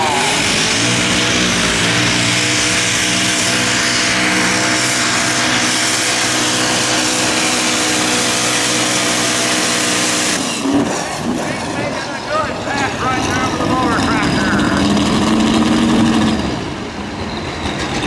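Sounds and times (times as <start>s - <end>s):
loud rushing noise: 0.0s - 18.0s
tractor engine at full throttle: 0.0s - 18.0s.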